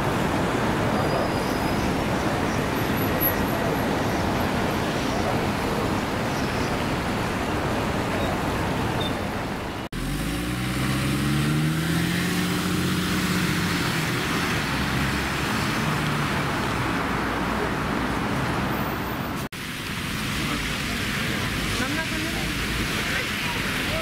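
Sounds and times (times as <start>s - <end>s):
road noise inside vehicle: 0.0s - 24.0s
street traffic: 0.0s - 24.0s
large engine hum: 7.1s - 19.4s.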